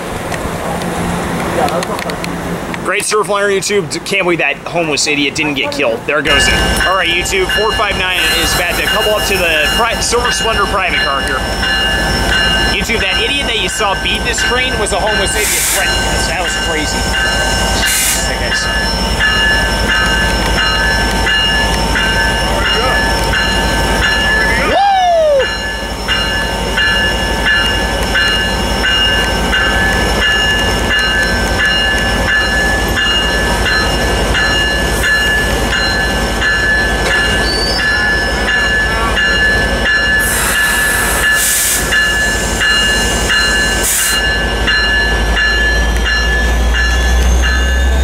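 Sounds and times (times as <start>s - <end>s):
locomotive bell ringing: 1.6s - 48.0s
air hiss bursts: 40.2s - 44.2s.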